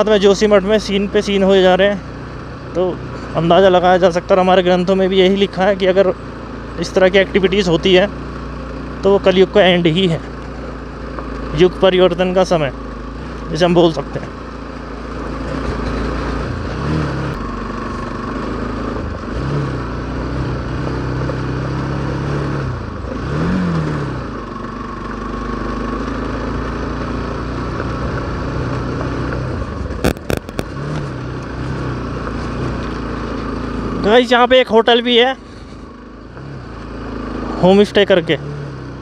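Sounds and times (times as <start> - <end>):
motorcycle engine revving: 14.9 - 21.2, 30.0 - 31.2.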